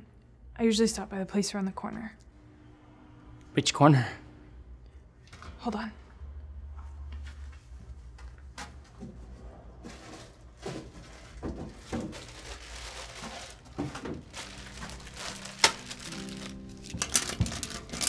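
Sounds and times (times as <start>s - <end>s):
plastic packet crinkling: 11.8s - 18.0s.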